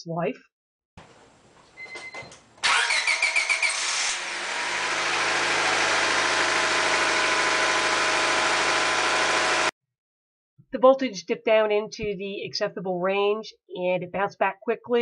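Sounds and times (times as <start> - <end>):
car starter cranking: 2.6 - 9.6
car engine idling: 2.6 - 9.7.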